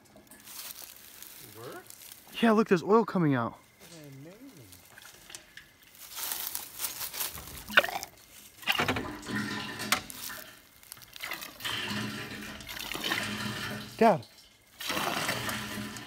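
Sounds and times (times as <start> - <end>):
hand pump mechanism scraping: 4.8 - 16.0
liquid spurting and splashing: 6.3 - 16.0.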